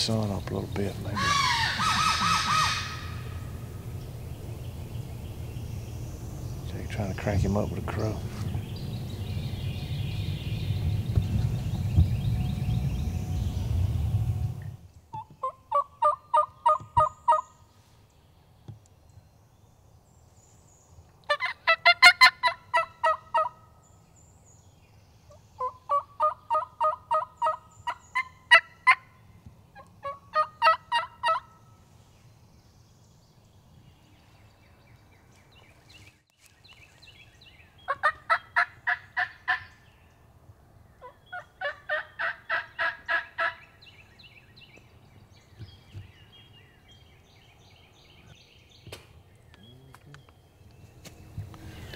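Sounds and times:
crow call caws: 1.2 - 3.3.

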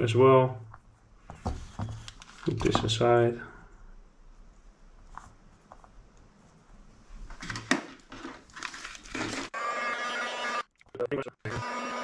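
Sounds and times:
heat gun whine: 9.6 - 10.7, 11.5 - 12.0.

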